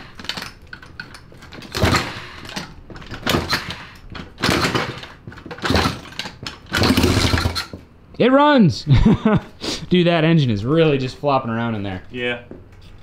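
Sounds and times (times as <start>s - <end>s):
engine kick start clattering: 0.1s - 7.8s.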